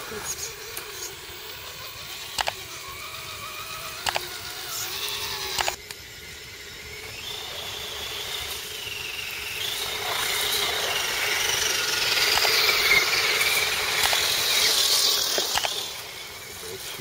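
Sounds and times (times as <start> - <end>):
electric motor and gearbox whining: 0.0 - 17.0
sharp clicks: 2.2 - 2.7, 4.0 - 4.4, 5.4 - 6.0, 12.1 - 13.0, 13.9 - 14.4, 15.1 - 15.8.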